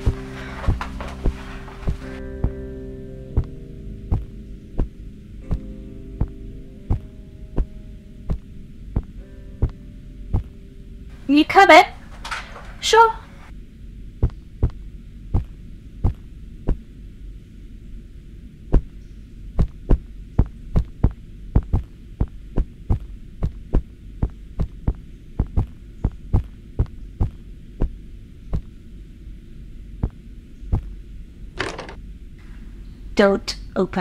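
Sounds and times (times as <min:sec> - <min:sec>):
footsteps on carpeted stairs: 0:00.0 - 0:02.6
steady low hum: 0:00.0 - 0:34.0.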